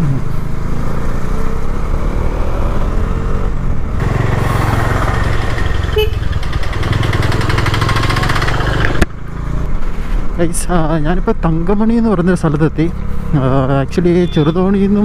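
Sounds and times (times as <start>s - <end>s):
motorcycle engine running: 3.0s - 9.6s.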